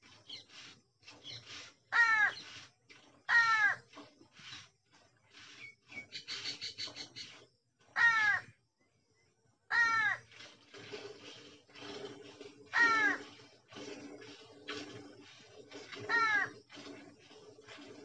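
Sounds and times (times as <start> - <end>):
milk squirting into steel pail: 0.0 - 6.0, 10.2 - 18.0
crow cawing: 2.0 - 2.3, 3.3 - 3.8, 8.0 - 8.5, 9.7 - 10.2, 12.8 - 13.2.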